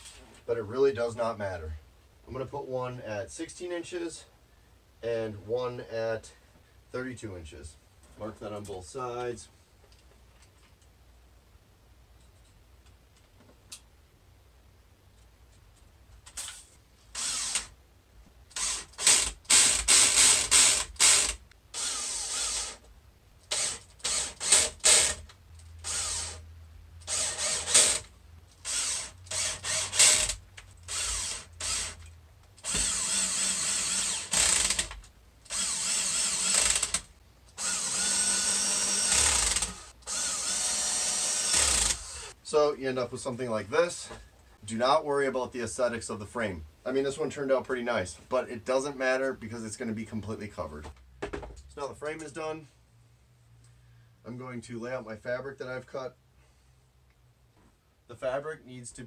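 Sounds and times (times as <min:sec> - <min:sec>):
cordless drill bursts: 0:17.1 - 0:17.8, 0:18.5 - 0:22.8, 0:23.5 - 0:25.2, 0:25.8 - 0:26.4, 0:27.0 - 0:32.0, 0:32.6 - 0:42.4.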